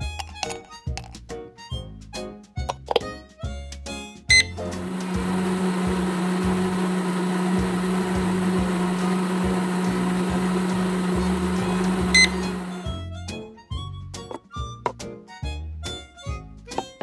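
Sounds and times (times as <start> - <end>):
kitchen appliance humming: 4.3 - 13.0.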